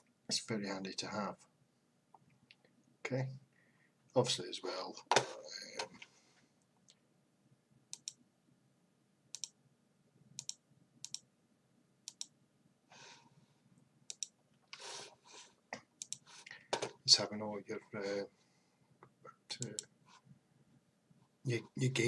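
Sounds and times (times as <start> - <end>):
soft breaths: 3.4 - 4.2, 5.3 - 6.8, 12.9 - 13.8, 14.6 - 16.8, 17.8 - 19.0
computer mouse clicks: 7.9 - 8.2, 9.3 - 9.6, 10.4 - 11.2, 12.1 - 12.3, 14.1 - 14.4, 16.0 - 16.3, 19.6 - 19.9.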